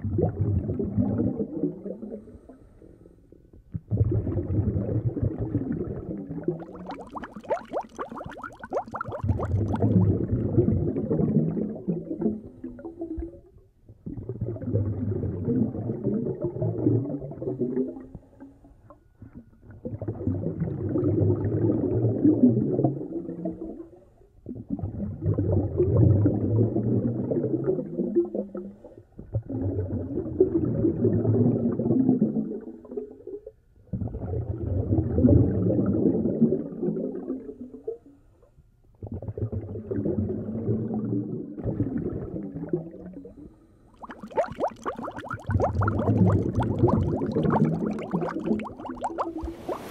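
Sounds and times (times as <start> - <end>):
muffled gurgling sea water surging: 43.5 - 49.9.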